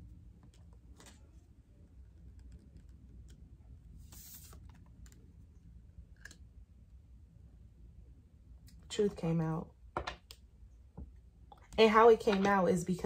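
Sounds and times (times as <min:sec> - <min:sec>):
cards rustling: 0:04.0 - 0:05.3.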